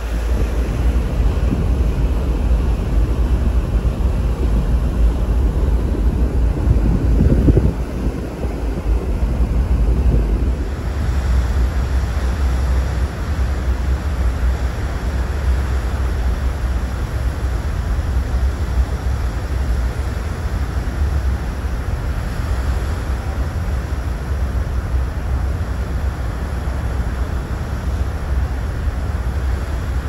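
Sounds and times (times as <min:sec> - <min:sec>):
low rumble: 0:00.0 - 0:14.6
sea water rushing along hull: 0:00.0 - 0:30.0
wind buffeting microphone: 0:00.0 - 0:30.0.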